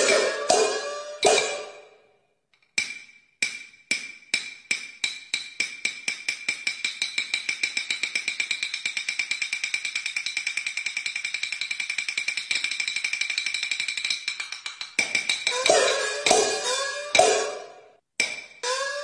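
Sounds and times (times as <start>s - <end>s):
sharp percussion beat speeding up: 0.0s - 1.9s, 12.0s - 17.8s
crash cymbal ringing: 0.0s - 2.0s.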